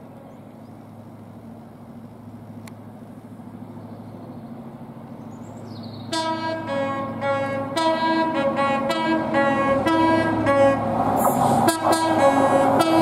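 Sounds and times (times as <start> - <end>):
diesel train engine droning: 0.0 - 13.0
loud train horn: 6.1 - 13.0.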